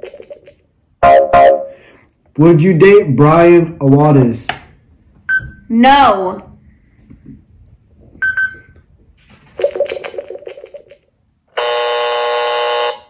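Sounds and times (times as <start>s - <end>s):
short electronic beep: 1.0s - 1.8s, 8.2s - 8.6s
warbling electronic tone: 1.0s - 1.8s
loud steady buzzer: 11.5s - 13.0s.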